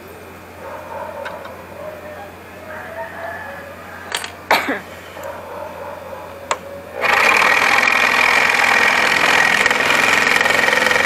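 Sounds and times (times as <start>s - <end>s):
scroll saw cutting wood: 6.5s - 11.0s.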